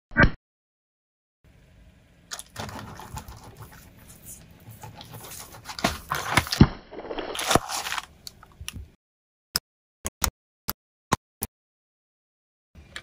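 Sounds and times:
objects crushed under car tyre: 0:05.6 - 0:08.1.

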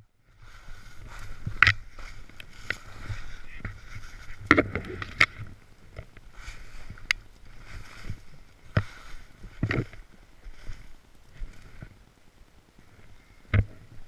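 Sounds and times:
snowboard swishing through snow: 0:00.4 - 0:04.4, 0:06.4 - 0:09.5.

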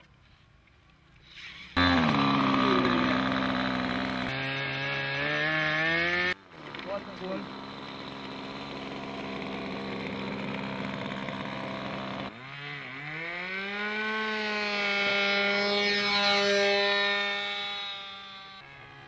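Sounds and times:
model plane engine: 0:01.3 - 0:19.0.

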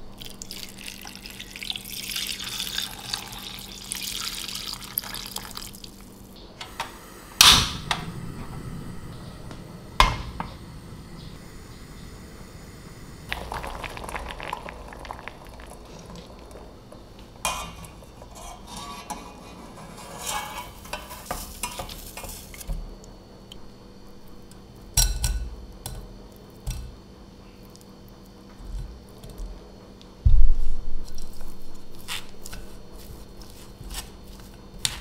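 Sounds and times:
water bubbling in pot: 0:00.1 - 0:06.1, 0:11.1 - 0:18.4
water splashing: 0:13.3 - 0:16.8
skimmer clinking and scraping in pot: 0:13.3 - 0:22.7.

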